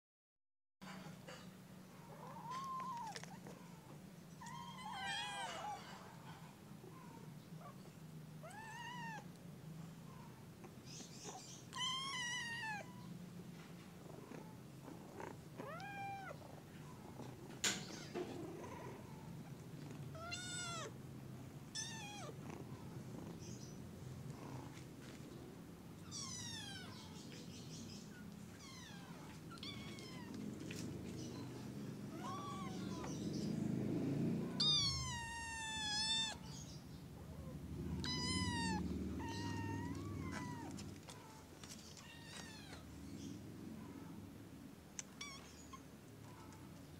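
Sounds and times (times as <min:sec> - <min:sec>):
kitten meowing: 0:08.4 - 0:09.3, 0:11.7 - 0:13.1, 0:15.6 - 0:16.4, 0:20.1 - 0:21.0, 0:21.7 - 0:22.4, 0:26.0 - 0:27.1, 0:28.6 - 0:30.4, 0:32.1 - 0:33.2, 0:34.5 - 0:36.5, 0:38.0 - 0:40.8, 0:45.0 - 0:45.9.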